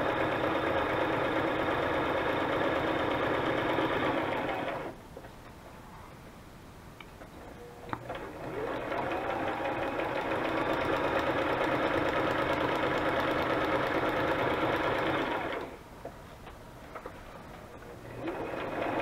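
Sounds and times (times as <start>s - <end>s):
sewing machine stitching: 0.0s - 5.0s, 8.0s - 15.8s, 18.0s - 19.0s.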